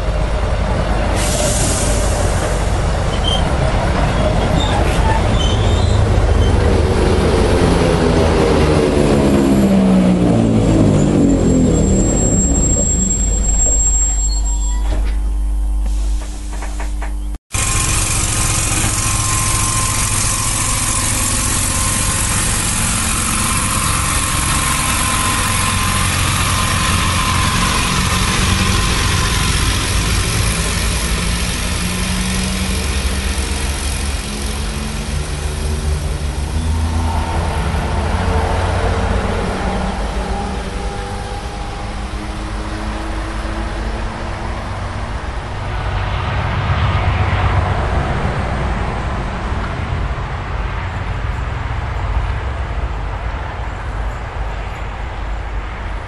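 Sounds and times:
train wheels rumbling: 0.0s - 56.0s
electric motor whine: 17.6s - 44.4s.

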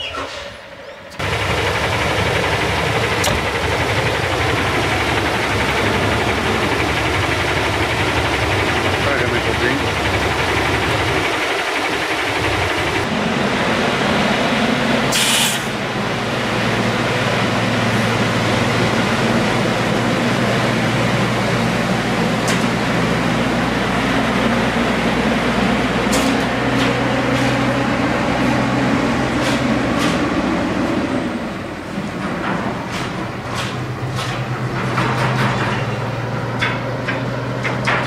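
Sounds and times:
truck diesel engine humming: 0.7s - 38.0s
brief hiss: 15.1s - 15.7s.

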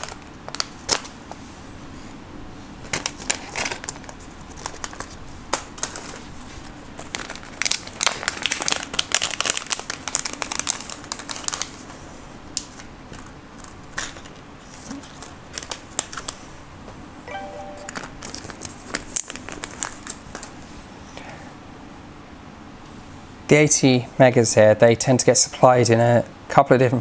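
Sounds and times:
plastic bag crinkling: 7.0s - 11.6s.

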